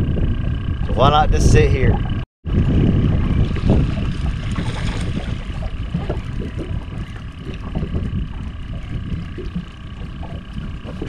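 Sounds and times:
wind buffeting microphone: 0:00.0 - 0:11.0
small water splashes: 0:03.2 - 0:11.0.

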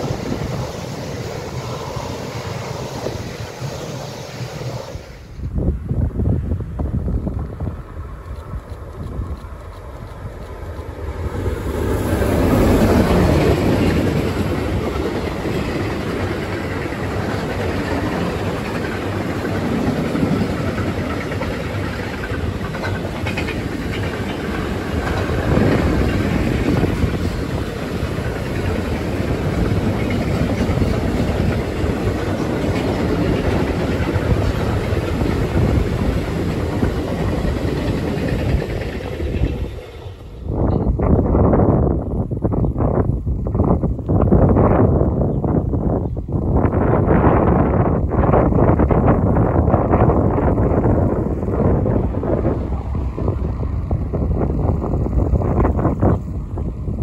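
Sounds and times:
electric locomotive passing: 0:00.0 - 0:57.0
train wheels rumbling on rails: 0:00.0 - 0:57.0.

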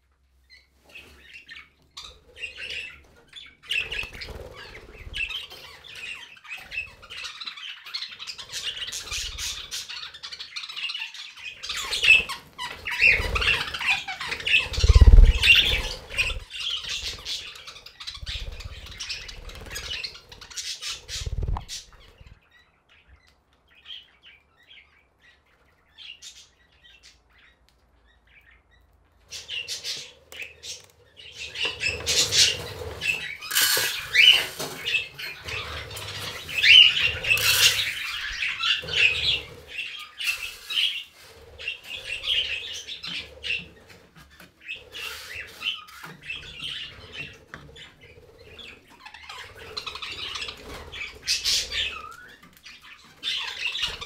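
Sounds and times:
budgerigars chattering and squawking: 0:00.5 - 0:23.0, 0:29.3 - 0:54.0
wings flapping: 0:03.8 - 0:05.4, 0:12.0 - 0:17.5, 0:18.1 - 0:22.3, 0:31.8 - 0:39.6.

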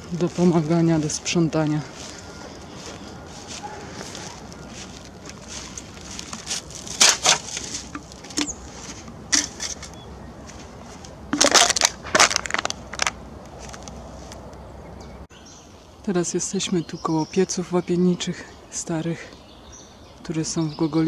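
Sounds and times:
plastic bag crinkling: 0:01.9 - 0:10.6, 0:11.3 - 0:13.2.

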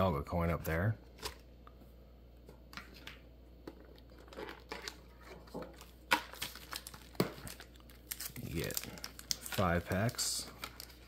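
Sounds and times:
plastic packaging crinkling: 0:04.0 - 0:11.0.

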